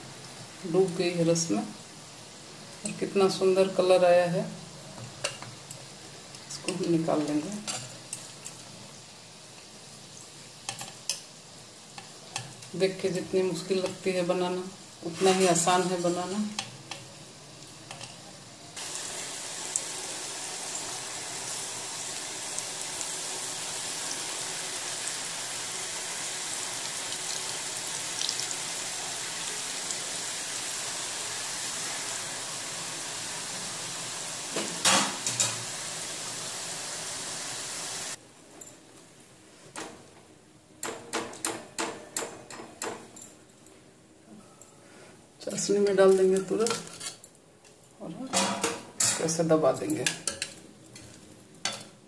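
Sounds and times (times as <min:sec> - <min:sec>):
oil sizzling: 0:00.0 - 0:38.2.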